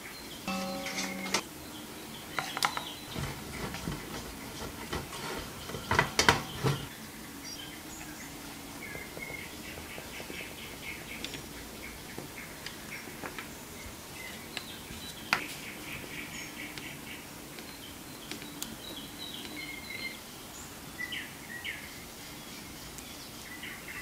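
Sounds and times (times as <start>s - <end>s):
metal clink in bowl: 0.5s - 1.4s
scrapes and knocks: 3.1s - 6.9s.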